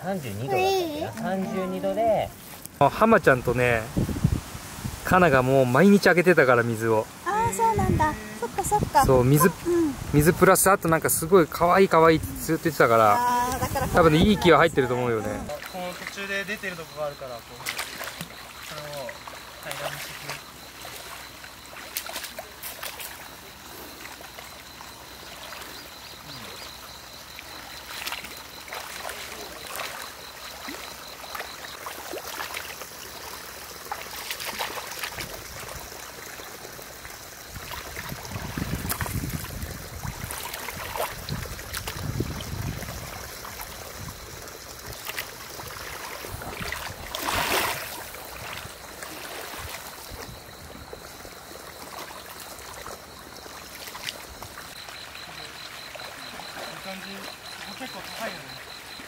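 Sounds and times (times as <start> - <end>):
muddy water sloshing and splashing: 7.0 - 59.0
rakes dragged through water: 11.8 - 25.8, 44.9 - 51.0.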